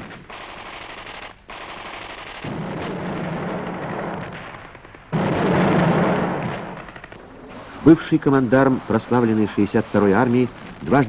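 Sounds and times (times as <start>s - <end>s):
rapid machine-gun fire: 0.0s - 7.2s.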